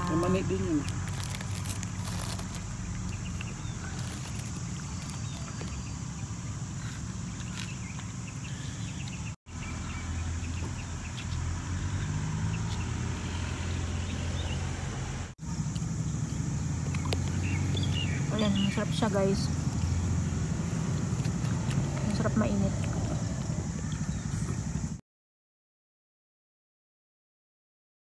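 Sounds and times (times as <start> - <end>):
low outdoor rumble: 0.0 - 25.0.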